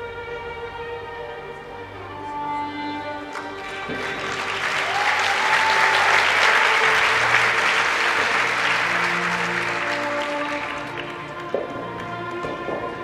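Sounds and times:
backing music: 0:00.0 - 0:13.0
audience applauding: 0:03.3 - 0:12.4.

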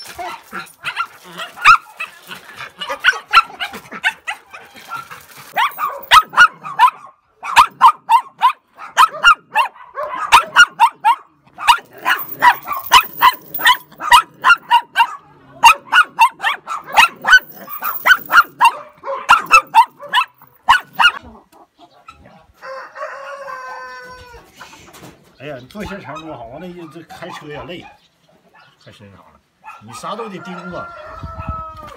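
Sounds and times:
small dog barking: 0:00.8 - 0:02.1, 0:02.8 - 0:21.2, 0:29.6 - 0:30.0.

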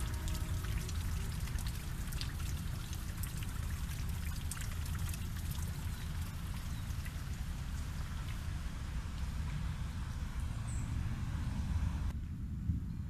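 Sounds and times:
rain drips pattering: 0:00.0 - 0:11.0.

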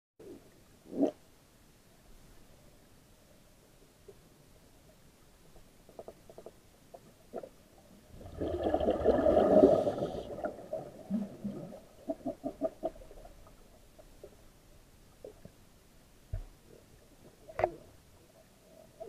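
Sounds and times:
faint clicks and knocks: 0:04.0 - 0:07.6, 0:12.2 - 0:19.0
underwater gurgling bubbles: 0:07.3 - 0:14.4.

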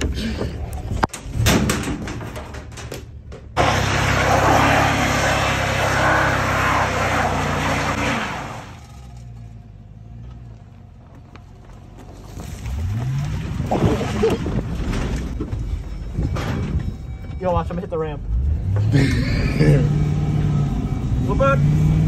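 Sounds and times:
van engine revving: 0:03.6 - 0:11.0, 0:18.2 - 0:22.0.

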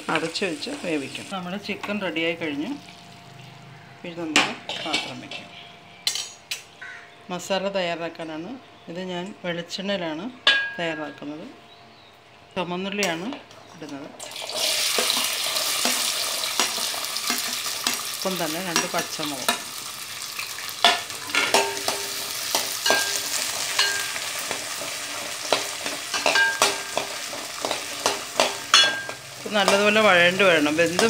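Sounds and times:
shallots sizzling in hot oil: 0:00.0 - 0:03.8, 0:14.2 - 0:31.0.

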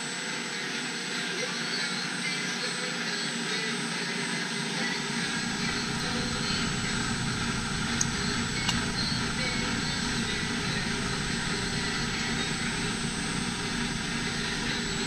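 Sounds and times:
milling machine hum and whine: 0:00.0 - 0:15.0
low rumble: 0:05.3 - 0:15.0.

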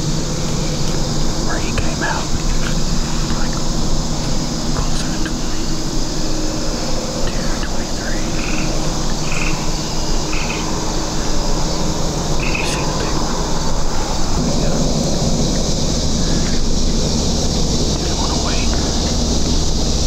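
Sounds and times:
frog calling: 0:00.0 - 0:20.0
steady outdoor hiss: 0:00.0 - 0:20.0.

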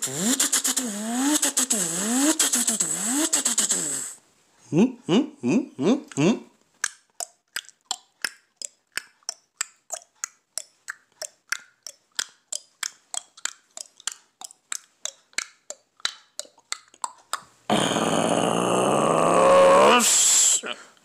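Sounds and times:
mouth clicks imitating an engine: 0:06.8 - 0:17.5
vocal engine drone: 0:17.7 - 0:20.8.

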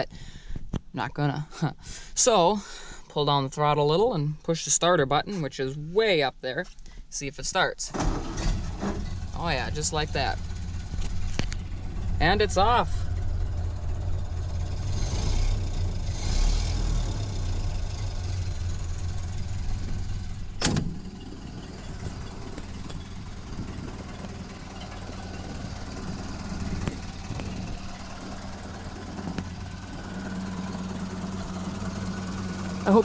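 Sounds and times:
car engine idling: 0:08.0 - 0:33.0
car door latch click: 0:20.6 - 0:21.0.

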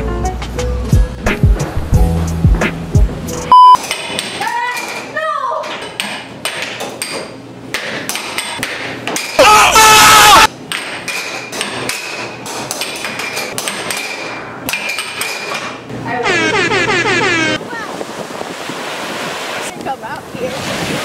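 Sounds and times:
air hockey puck clacking: 0:03.8 - 0:05.0, 0:05.6 - 0:09.4, 0:10.7 - 0:15.8
person yelling: 0:09.4 - 0:10.5.

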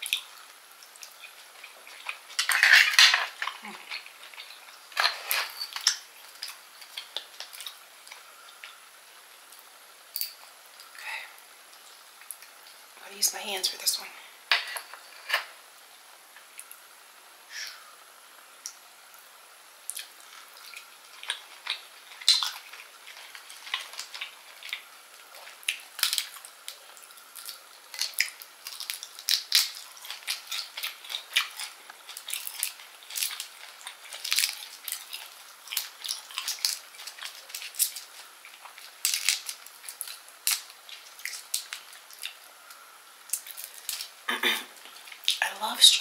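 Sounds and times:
shrimp shell cracking: 0:21.3 - 0:26.8, 0:27.4 - 0:42.4.

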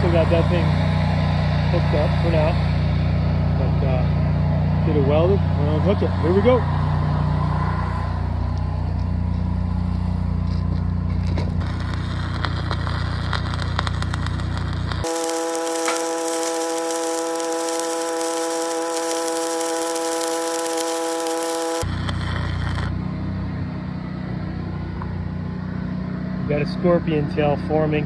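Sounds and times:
engine low hum: 0:00.0 - 0:28.0
arc welding crackle: 0:11.3 - 0:23.0
steady humming tone: 0:11.6 - 0:23.0.

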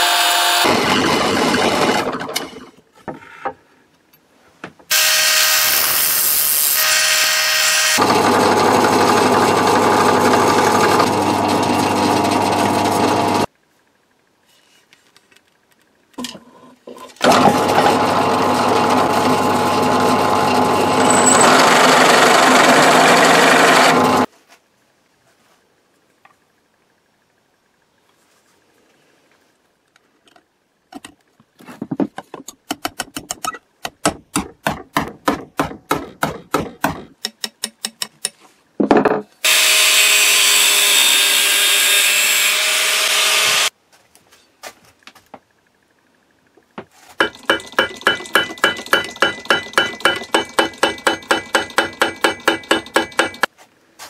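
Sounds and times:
angle grinder cutting: 0:00.0 - 0:02.4, 0:04.9 - 0:13.5, 0:17.2 - 0:24.3, 0:39.4 - 0:43.7
hammer striking metal pin: 0:47.2 - 0:53.5.

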